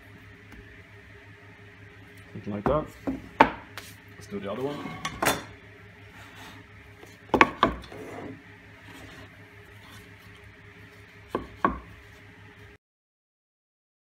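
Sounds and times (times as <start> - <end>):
knocks on wooden workbench: 7.3 - 7.8, 11.3 - 11.9.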